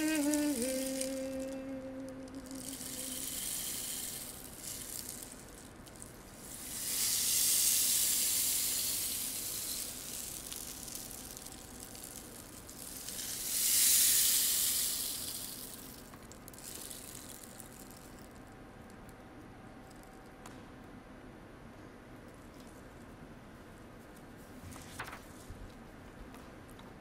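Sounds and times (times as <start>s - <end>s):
rainstick grains hissing: 0.0s - 18.2s.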